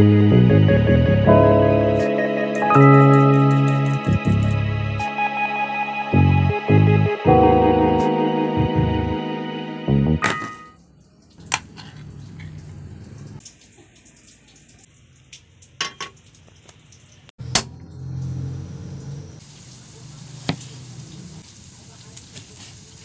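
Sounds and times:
frying pan knocks and clinks: 0:10.2 - 0:10.8.

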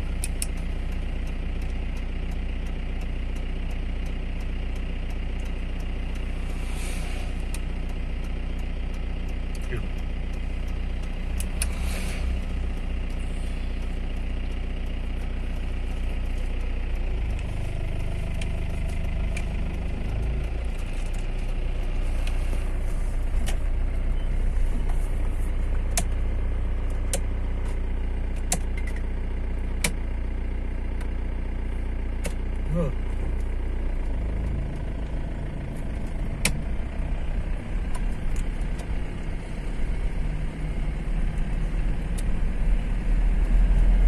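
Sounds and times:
car engine and tyre rumble: 0:00.0 - 0:44.0
sharp clicks: 0:25.8 - 0:26.2, 0:27.0 - 0:29.1, 0:35.8 - 0:39.3.

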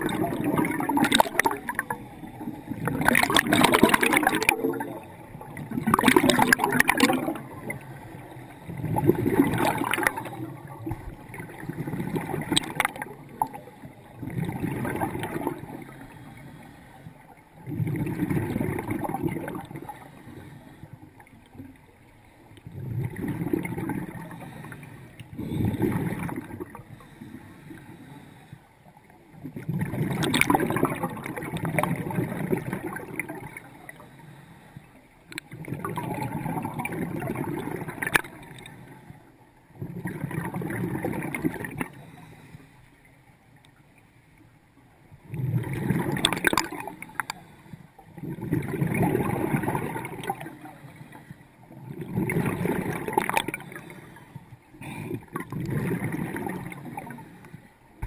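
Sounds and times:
scuba regulator bubbling underwater: 0:00.0 - 0:16.2, 0:17.6 - 0:20.1, 0:22.6 - 0:27.1, 0:29.5 - 0:33.6, 0:35.4 - 0:38.6, 0:39.8 - 0:41.9, 0:45.2 - 0:47.3, 0:48.2 - 0:50.6, 0:51.7 - 0:53.9, 0:54.9 - 0:57.2.

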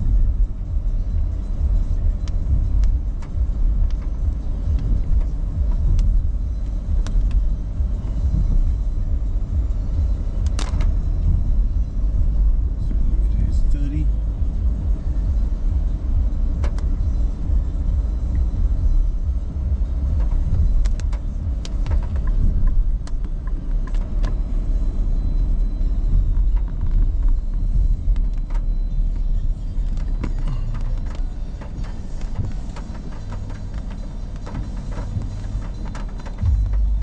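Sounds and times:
car road noise rumble: 0:00.0 - 0:37.0.

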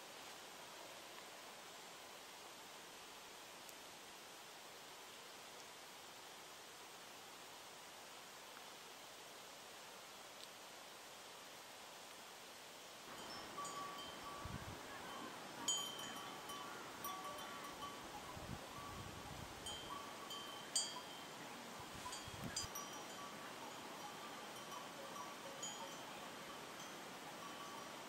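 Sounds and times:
metal livestock bells clanking: 0:13.1 - 0:19.0, 0:19.7 - 0:21.3, 0:22.0 - 0:28.0
wind gusts on microphone: 0:13.1 - 0:21.0, 0:21.7 - 0:28.0.

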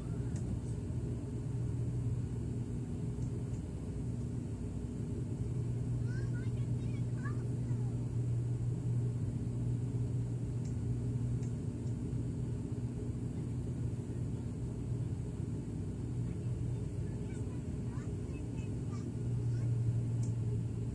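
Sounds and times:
turboprop cabin drone: 0:00.0 - 0:20.9.

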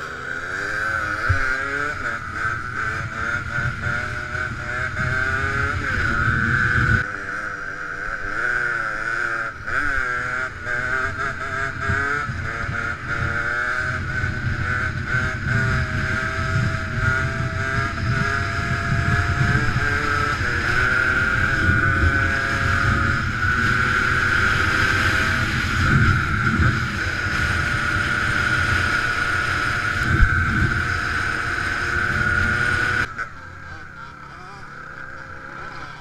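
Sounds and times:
dirt bike engine revving: 0:00.0 - 0:36.0
wind buffeting microphone: 0:11.8 - 0:33.1.

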